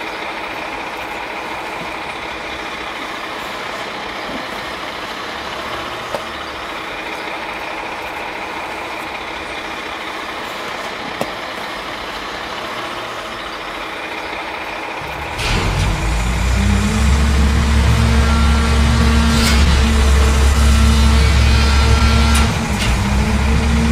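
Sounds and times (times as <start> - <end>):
garbage truck compactor droning: 0.0 - 23.9
garbage truck idling: 0.0 - 23.9.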